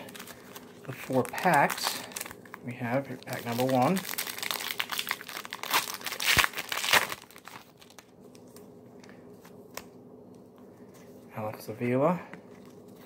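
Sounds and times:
wrapper tearing and crinkling: 0:00.0 - 0:08.1.

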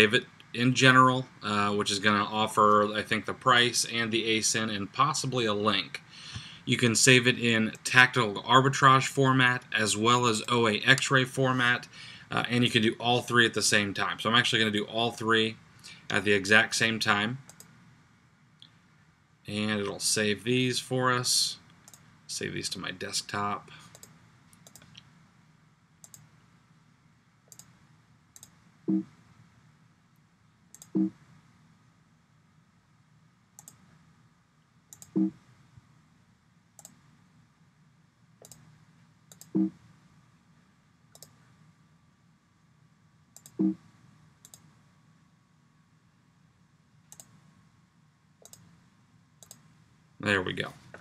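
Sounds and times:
computer mouse clicks: 0:17.5 - 0:17.8, 0:21.6 - 0:22.1, 0:23.9 - 0:25.1, 0:26.0 - 0:26.3, 0:27.5 - 0:27.8, 0:28.4 - 0:29.2, 0:30.7 - 0:31.3, 0:33.6 - 0:33.9, 0:34.9 - 0:35.4, 0:36.8 - 0:37.0, 0:38.4 - 0:38.7, 0:39.3 - 0:39.8, 0:41.1 - 0:41.4, 0:43.4 - 0:43.8, 0:44.4 - 0:44.7, 0:47.1 - 0:47.4, 0:48.4 - 0:48.7, 0:49.4 - 0:49.7.

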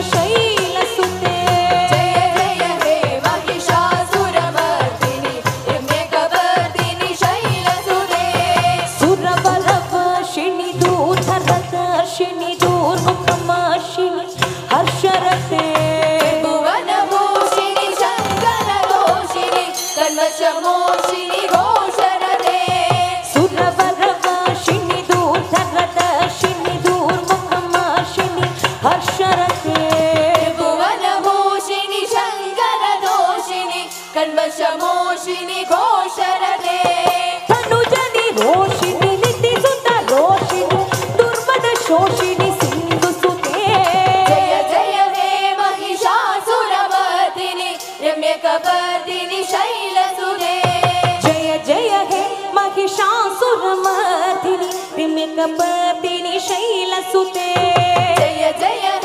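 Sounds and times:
hand-drum rhythm: 0:00.0 - 0:59.0
women singing a chant: 0:00.0 - 0:59.0.

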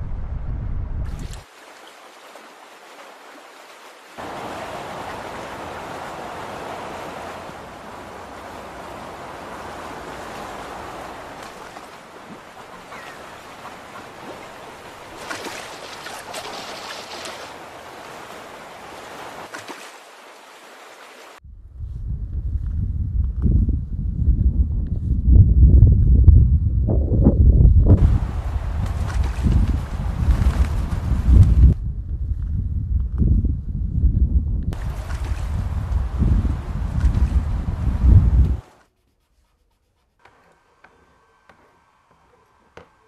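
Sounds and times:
steady rushing noise: 0:27.0 - 0:31.9.

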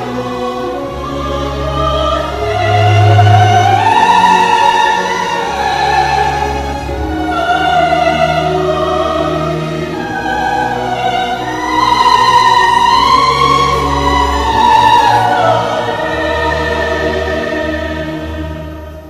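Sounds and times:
opera voices singing: 0:00.0 - 0:19.0
orchestra playing: 0:00.0 - 0:19.0.

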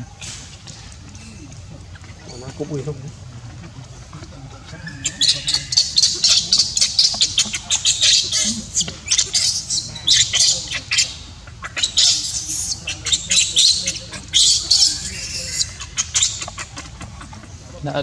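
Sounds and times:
baby monkey screaming: 0:04.7 - 0:17.0.

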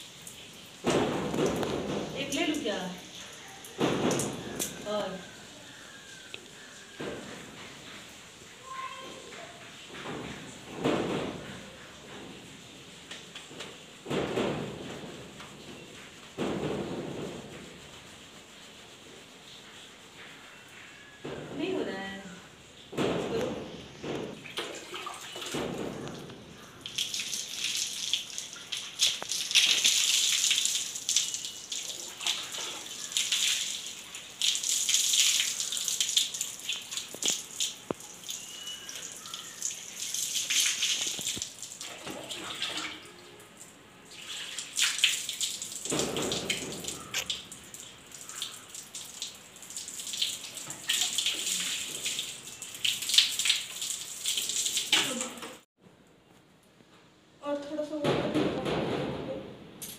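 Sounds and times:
water pouring over hair: 0:00.0 - 0:08.0, 0:24.2 - 0:43.4, 0:44.0 - 0:55.7
water splashing on concrete floor: 0:00.0 - 0:18.0, 0:21.6 - 0:55.7.

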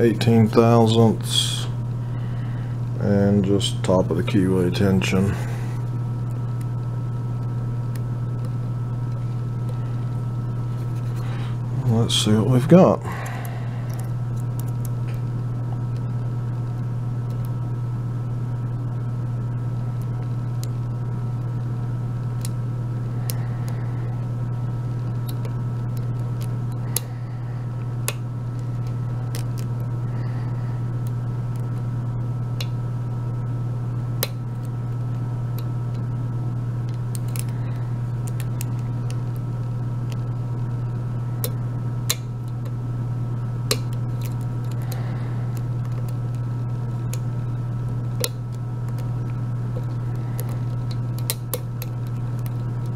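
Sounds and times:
steady low hum: 0:00.0 - 0:52.9
lock pick clicks: 0:36.9 - 0:37.5, 0:50.4 - 0:52.6.

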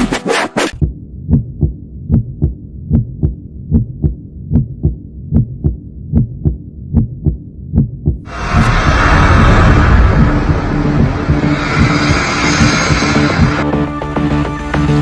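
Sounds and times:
heartbeat double thump: 0:00.8 - 0:08.2
loud rushing noise: 0:08.3 - 0:15.0.

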